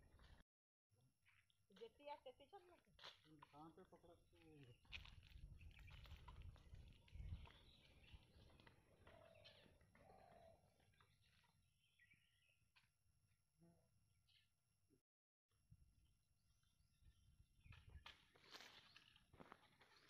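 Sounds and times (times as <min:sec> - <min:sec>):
faint bird calls: 0:07.1 - 0:12.5.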